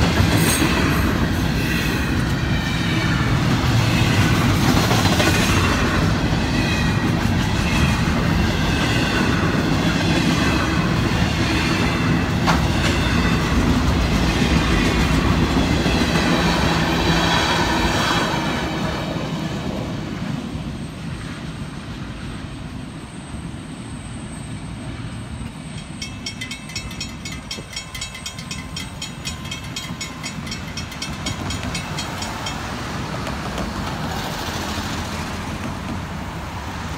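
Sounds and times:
train wheels clattering: 25.4s - 36.2s
crossing bell ringing: 25.5s - 33.1s
cars passing: 30.6s - 36.9s.

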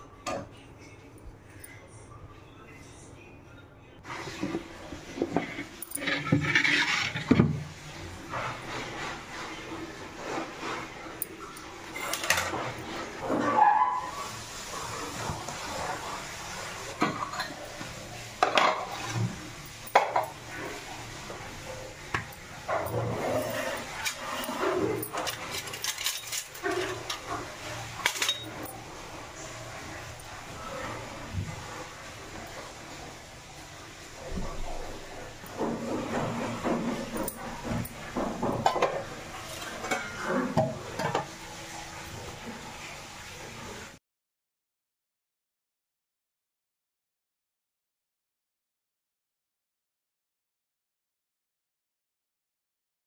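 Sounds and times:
kitchen utensils and pots clattering: 4.0s - 43.4s.

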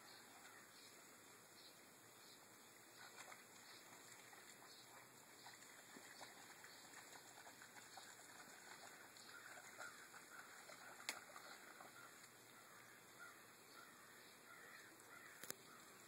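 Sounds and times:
faint ticks: 14.8s - 15.6s.

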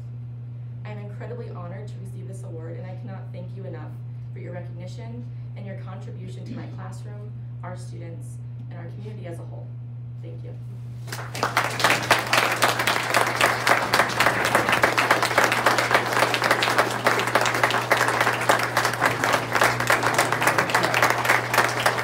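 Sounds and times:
audience applauding: 11.1s - 22.0s.

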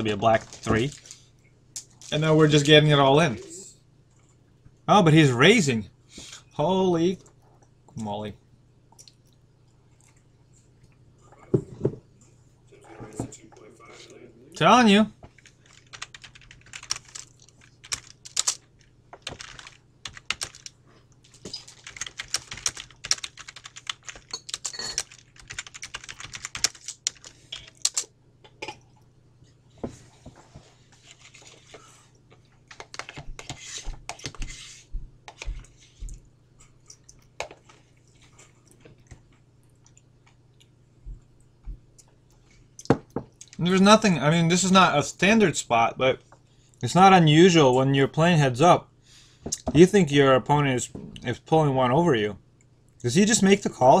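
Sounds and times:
faint low hum: 0.0s - 54.0s
typing on computer keyboard: 15.4s - 18.6s, 19.2s - 20.7s, 21.6s - 28.0s.

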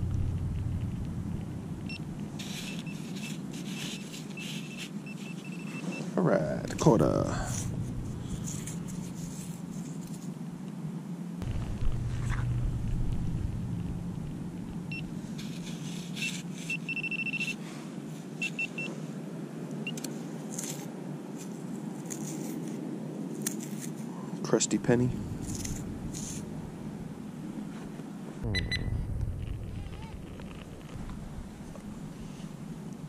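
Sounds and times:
steady low hum: 0.0s - 33.0s
high thin beeping: 1.9s - 6.0s, 16.2s - 17.6s
sand scraping: 2.2s - 6.0s, 15.2s - 16.9s, 25.3s - 26.5s.

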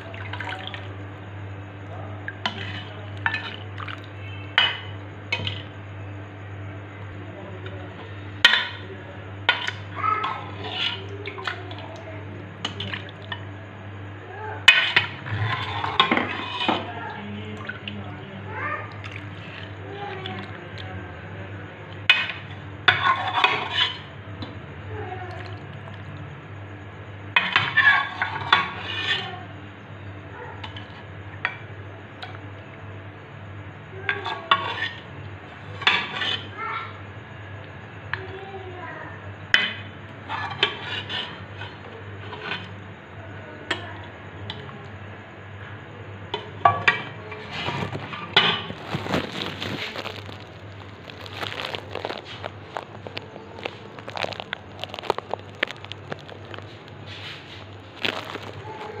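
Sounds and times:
steady low hum: 0.0s - 27.4s, 44.2s - 59.0s.

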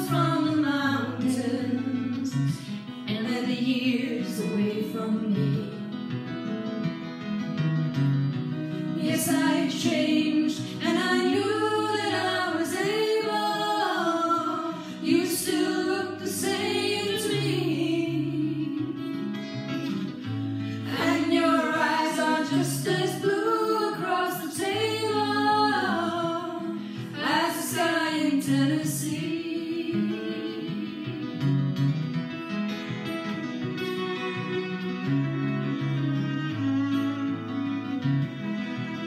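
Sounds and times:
woman singing: 0.0s - 6.0s, 8.9s - 19.3s, 20.8s - 31.8s.

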